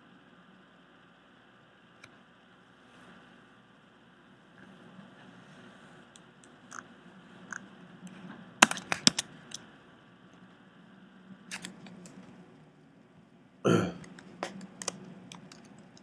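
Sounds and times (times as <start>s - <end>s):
mouse and keyboard clicks: 8.6s - 9.6s, 11.5s - 12.2s, 14.0s - 16.0s.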